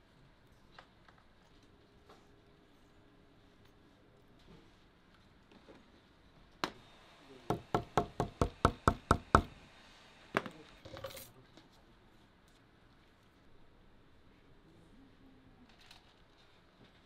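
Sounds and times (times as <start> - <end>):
small hammer tapping metal: 7.5 - 9.5
tools clattering: 10.9 - 11.3.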